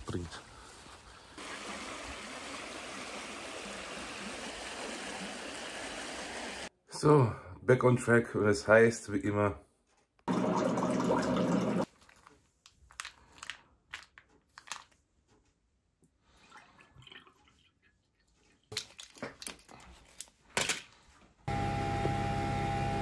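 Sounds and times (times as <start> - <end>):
liquid pouring into glass: 10.3 - 11.9, 16.5 - 18.7
water dispenser pump running: 10.3 - 11.9, 21.5 - 23.0.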